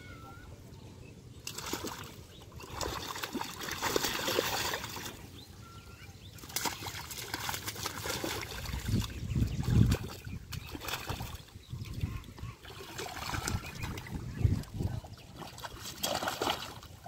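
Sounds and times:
water and mud splashing: 1.4s - 17.0s
bird chirping: 5.0s - 7.0s.

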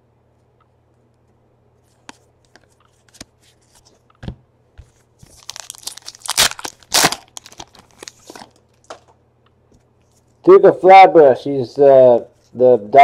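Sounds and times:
foil wrapper crinkling: 5.2s - 8.8s.

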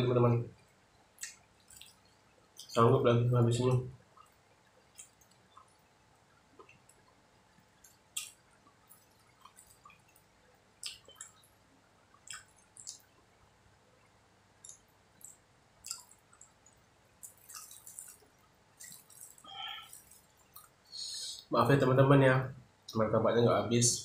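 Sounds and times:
wet chewing mouth clicks: 1.2s - 2.8s, 4.1s - 5.8s, 7.8s - 10.2s, 10.8s - 11.5s, 12.1s - 13.2s, 14.6s - 20.8s.

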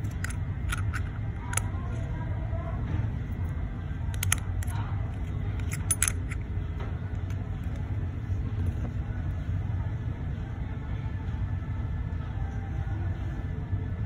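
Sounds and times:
metal clicks of watch case: 0.0s - 1.7s, 4.1s - 6.4s
steady low rumble: 0.0s - 14.0s.

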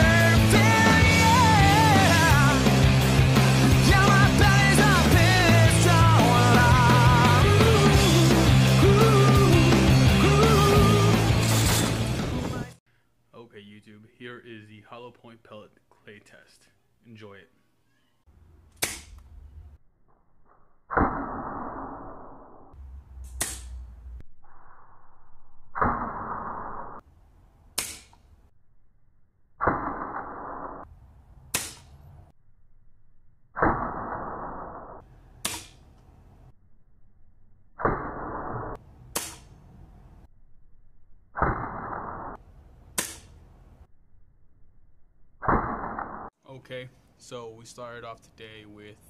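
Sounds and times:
pellet gun shots: 18.7s - 19.3s, 23.2s - 23.8s, 27.7s - 28.3s, 31.5s - 32.1s, 35.4s - 36.0s, 39.1s - 39.6s, 42.9s - 43.4s
air rifle cracks: 31.5s - 32.0s.

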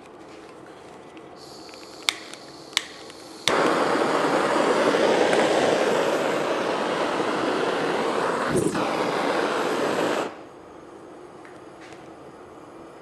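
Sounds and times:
gas torch igniter clicks: 1.4s - 10.4s
gas torch hissing: 1.4s - 11.0s.

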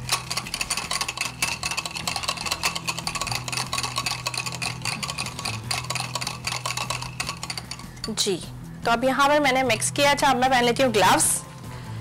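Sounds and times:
whisk clicking and scraping bowl: 0.0s - 8.2s.

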